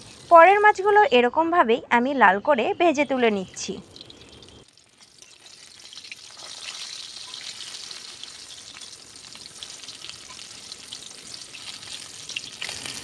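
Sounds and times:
fish sizzling in hot oil: 0.0 - 1.0, 3.4 - 13.0
spatula turning fish: 3.9 - 13.0.

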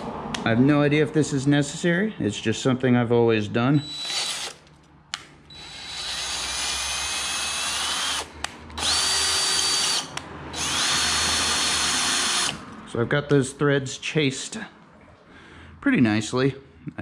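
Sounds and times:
cordless drill motor whine: 3.8 - 4.6, 5.5 - 12.6.

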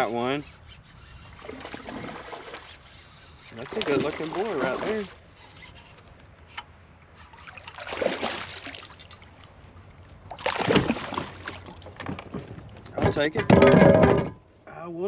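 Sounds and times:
water splashing around kayak: 1.2 - 6.2, 7.0 - 13.5.

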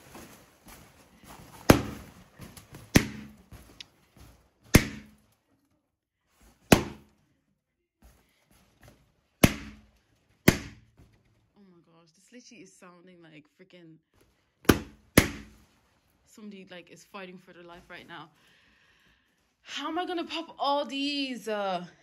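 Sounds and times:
balloon rustling: 0.0 - 11.6, 14.1 - 20.0
balloons popping: 1.2 - 3.9, 4.6 - 5.3, 6.6 - 7.2, 9.3 - 11.0, 14.5 - 15.8.

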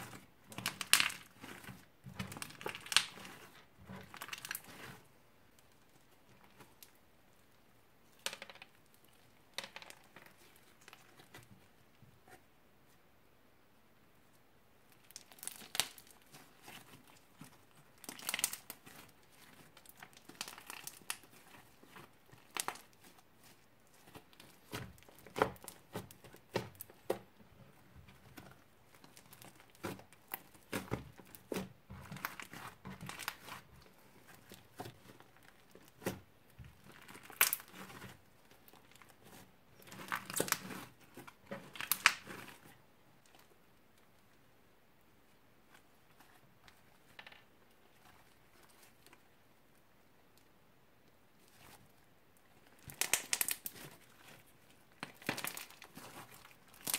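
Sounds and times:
slime crackling and popping: 0.0 - 5.0, 14.9 - 43.5, 52.6 - 56.9.

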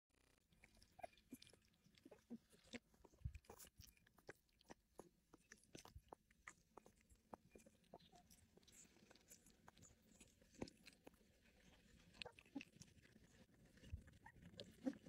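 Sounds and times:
puppies chewing wet food: 0.3 - 15.0.

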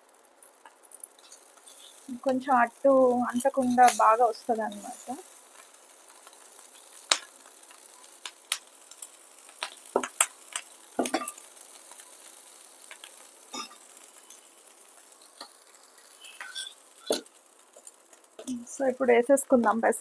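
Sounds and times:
oil sizzling in frying pan: 0.0 - 20.0
steel utensils clinking: 3.2 - 5.1, 16.2 - 17.2.

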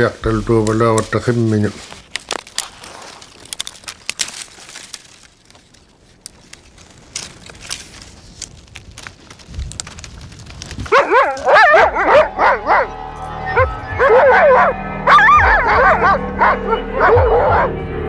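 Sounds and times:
faint crackling: 0.0 - 12.4
dogs yelping and barking: 10.9 - 17.8.

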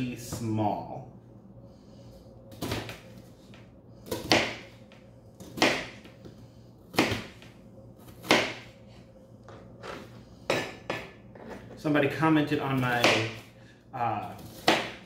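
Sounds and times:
knife cutting onion on board: 4.0 - 4.6, 5.4 - 6.0, 8.0 - 8.6, 14.4 - 15.0.

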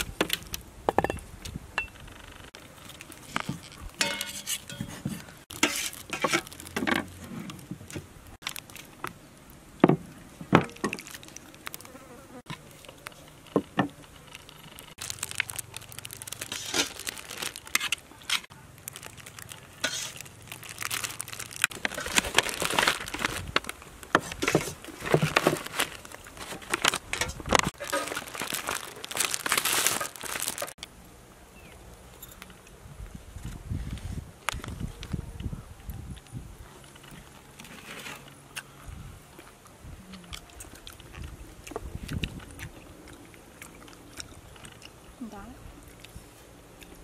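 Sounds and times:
plastic bag rustling: 2.7 - 7.4, 14.0 - 30.8
metal spatula scraping metal tray: 4.0 - 6.4.

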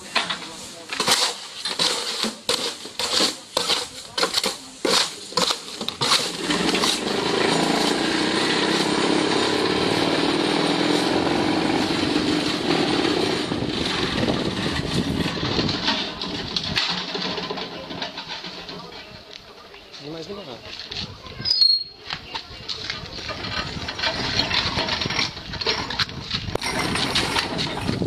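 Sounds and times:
vibrator motor running: 6.4 - 15.5.

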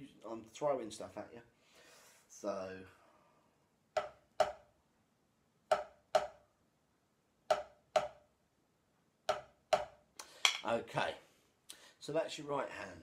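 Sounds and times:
drumstick taps on practice pad: 4.0 - 4.6, 5.7 - 6.4, 7.5 - 8.2, 9.3 - 10.6.

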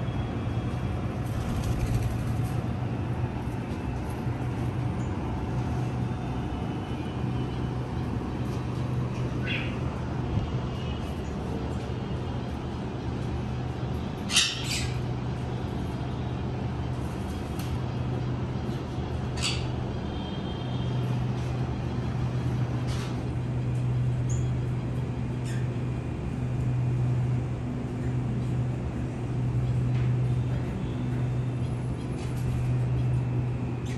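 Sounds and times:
parrot calls: 14.3 - 15.0.

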